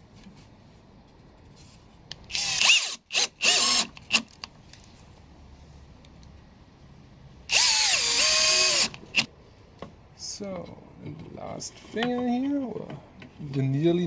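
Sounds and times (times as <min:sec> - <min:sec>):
drill driving screw into wood: 0:02.3 - 0:04.3, 0:07.5 - 0:09.3.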